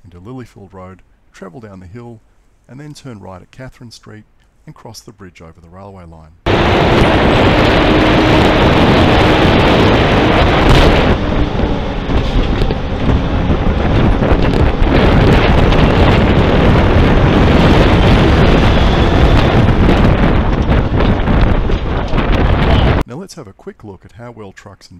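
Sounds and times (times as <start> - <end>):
heavy truck passing: 6.5 - 23.0
wind buffeting microphone: 6.5 - 23.0.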